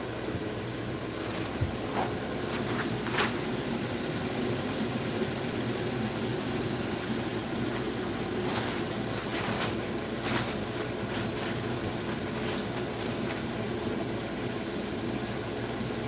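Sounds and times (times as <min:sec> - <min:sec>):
ventilation fans humming: 0:00.0 - 0:16.0.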